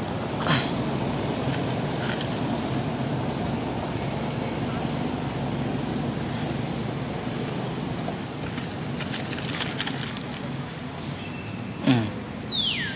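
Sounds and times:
dry leaves rustling: 8.2s - 10.9s.

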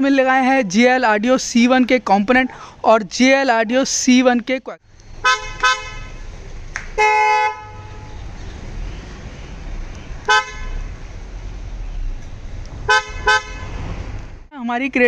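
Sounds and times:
car horn honking: 5.2s - 6.3s, 7.0s - 8.2s, 10.2s - 11.0s, 12.9s - 13.9s.

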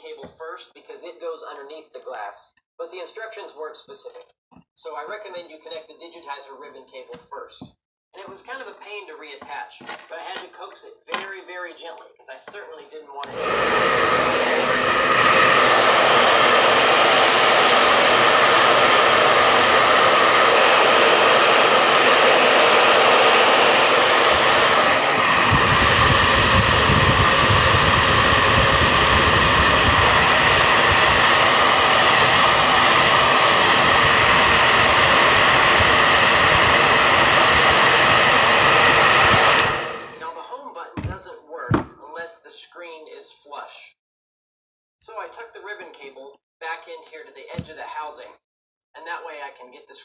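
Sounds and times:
hair dryer blowing: 13.2s - 40.4s.

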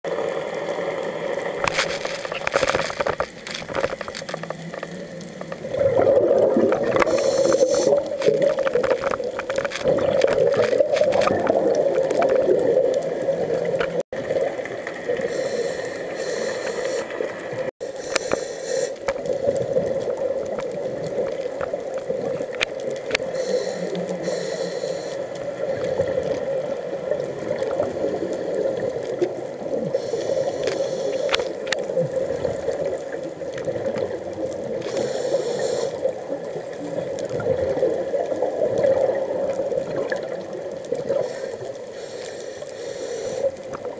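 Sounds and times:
crackle: 0.0s - 43.9s
steady underwater drone: 0.1s - 43.9s
exhaled bubbles: 1.4s - 15.5s, 35.9s - 41.4s
diver breathing through regulator: 6.9s - 8.2s, 15.2s - 17.2s, 17.8s - 19.1s, 23.2s - 25.3s, 29.9s - 31.6s, 34.8s - 36.1s, 41.1s - 43.6s.

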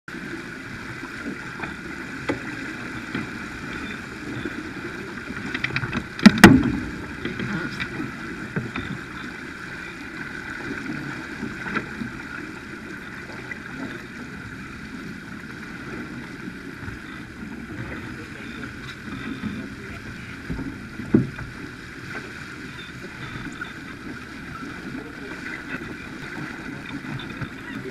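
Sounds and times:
water rushing past hull: 0.1s - 27.9s
sharp knocks and clicks: 5.4s - 7.9s.

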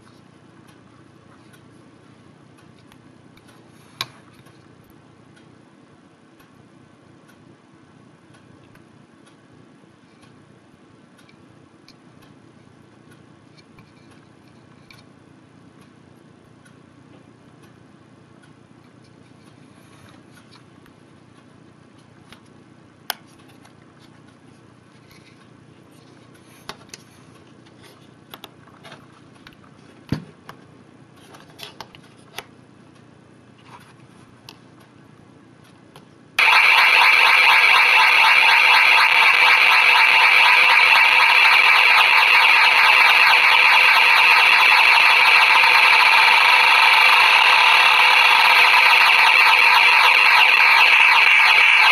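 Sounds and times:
faint hum: 32.3s - 51.9s.

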